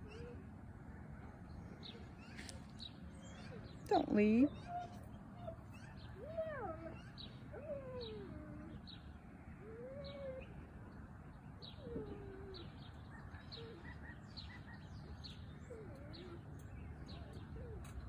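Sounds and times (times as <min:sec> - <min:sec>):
low cooing bird calls: 0:00.0 - 0:10.7, 0:11.6 - 0:18.0.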